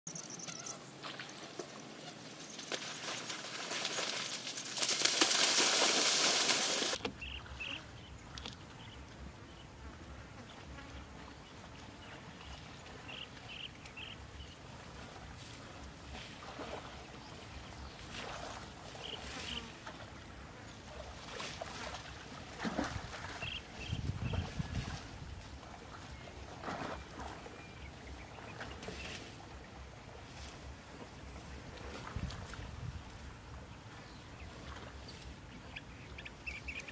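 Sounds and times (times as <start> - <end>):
water buffalo wading in water: 0.6 - 8.1, 11.1 - 36.9
water splashes: 0.9 - 7.7, 11.1 - 36.9.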